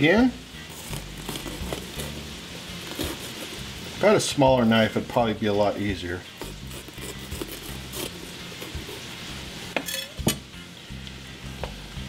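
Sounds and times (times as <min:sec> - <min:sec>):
meat sizzling in a frying pan: 0:00.0 - 0:06.7, 0:07.8 - 0:12.0
knife cutting on wooden board: 0:00.7 - 0:03.7, 0:06.3 - 0:09.2.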